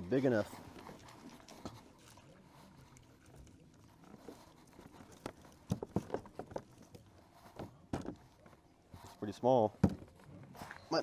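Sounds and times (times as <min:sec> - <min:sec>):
hollow knocks against plastic kayak: 0:09.8 - 0:10.1.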